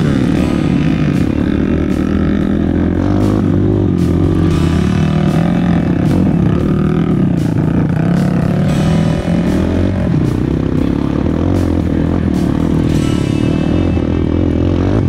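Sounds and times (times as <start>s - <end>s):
background music: 0.0s - 15.0s
dirt bike engine revving: 0.0s - 15.0s.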